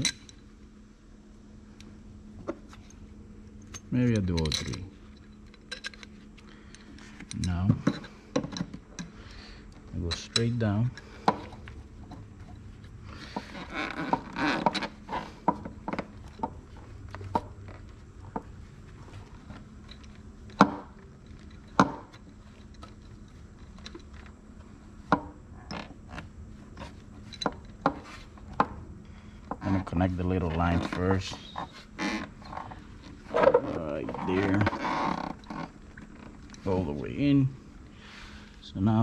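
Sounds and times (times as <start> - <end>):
rustling and scraping: 2.3 - 38.6
clicks and knocks of car parts: 6.8 - 9.2, 19.4 - 22.9.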